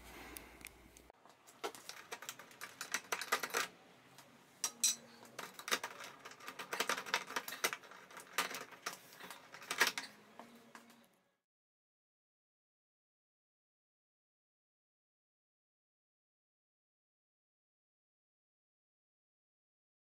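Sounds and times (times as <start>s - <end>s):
plastic and metal clicking: 1.6s - 3.7s, 5.2s - 10.9s.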